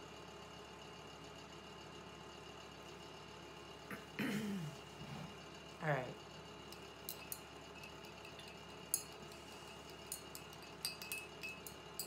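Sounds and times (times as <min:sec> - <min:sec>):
space heater hum and whine: 0:00.0 - 0:12.0
paintbrush clinking against glass jar: 0:06.7 - 0:12.0.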